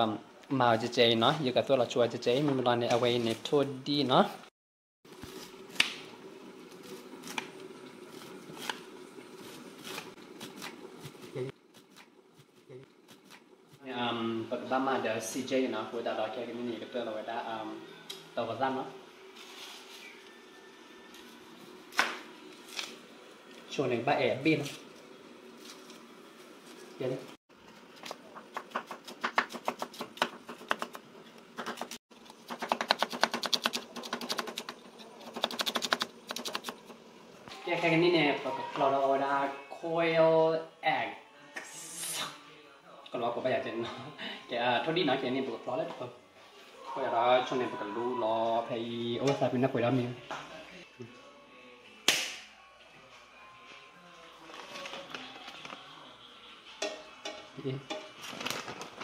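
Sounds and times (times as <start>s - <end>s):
faint background music: 13.8s - 22.0s, 37.5s - 59.0s.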